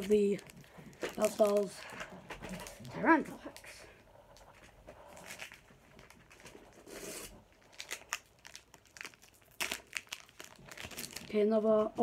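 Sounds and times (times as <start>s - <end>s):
wrapper tearing and crinkling: 0.0s - 3.7s, 5.0s - 11.8s.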